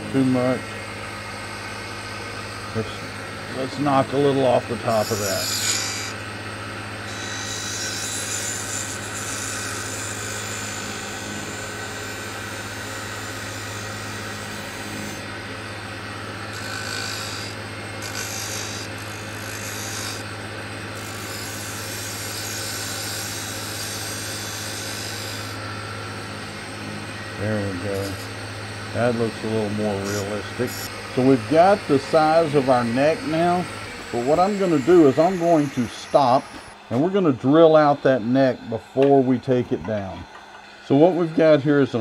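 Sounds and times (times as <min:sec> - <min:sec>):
wood lathe motor hum: 0:00.0 - 0:42.0
turning tool scraping wood: 0:29.0 - 0:37.2.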